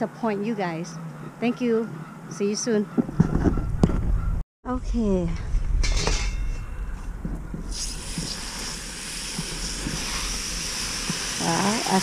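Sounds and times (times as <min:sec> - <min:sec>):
low rumble: 0:03.5 - 0:11.4
hose spraying water: 0:07.7 - 0:12.0.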